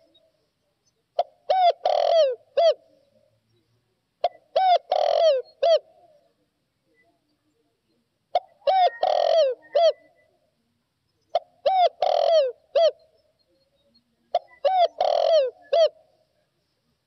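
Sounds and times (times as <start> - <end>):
dove cooing: 1.2 - 3.3, 4.2 - 6.4, 8.3 - 10.4, 11.3 - 13.2, 14.3 - 16.1.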